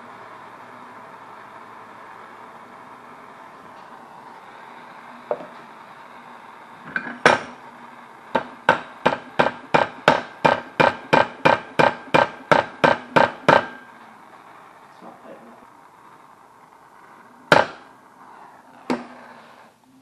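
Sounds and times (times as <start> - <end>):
propane torch hissing: 0.0 - 20.0.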